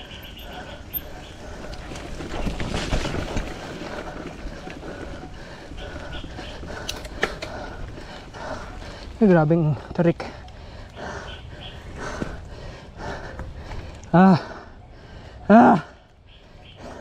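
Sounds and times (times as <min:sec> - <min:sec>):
bike tyres rolling and rattling: 0:00.0 - 0:14.1.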